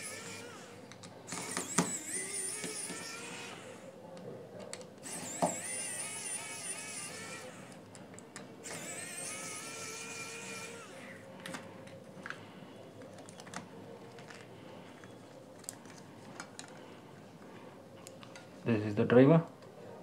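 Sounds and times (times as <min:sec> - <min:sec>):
electric screwdriver whirring: 0:00.0 - 0:03.8, 0:05.0 - 0:07.9, 0:08.6 - 0:11.6.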